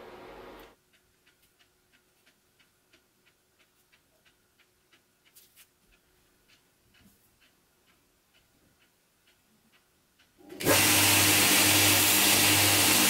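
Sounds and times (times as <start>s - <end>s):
faint even ticking: 0.7s - 10.5s.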